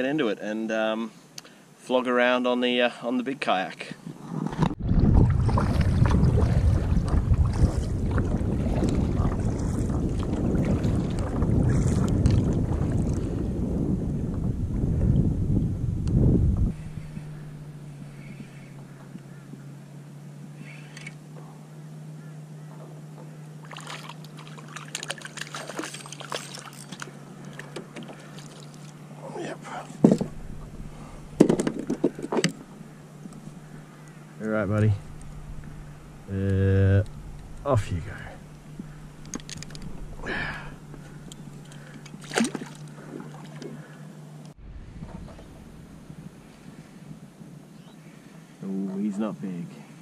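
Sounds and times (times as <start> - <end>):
steady low hum: 3.9 - 50.0
wind rumbling on microphone: 4.0 - 19.6, 30.0 - 43.4, 44.5 - 48.0
paddle splashing water: 4.5 - 15.2, 23.6 - 34.2, 38.3 - 44.3.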